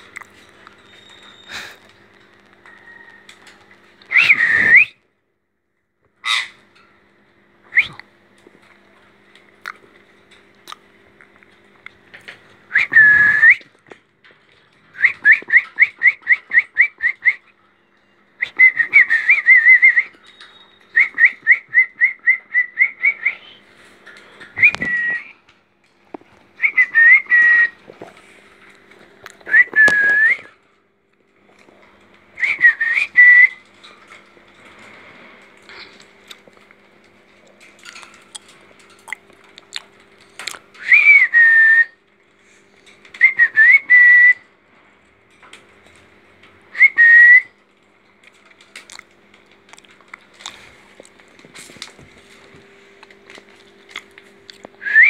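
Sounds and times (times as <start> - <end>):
high whistling: 4.1 - 5.0, 18.4 - 23.6, 26.6 - 27.8, 32.4 - 33.6, 40.8 - 42.0, 46.7 - 47.5, 54.8 - 55.0.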